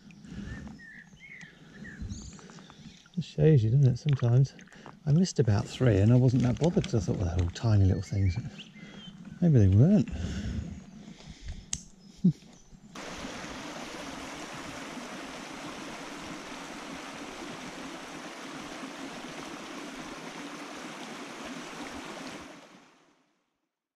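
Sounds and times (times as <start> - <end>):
click: 11.5 - 11.9
river water flowing: 13.0 - 23.3.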